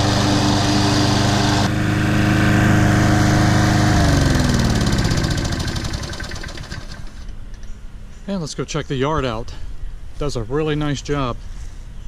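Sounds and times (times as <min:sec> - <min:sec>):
lawn mower engine winding down: 0:00.0 - 0:07.6.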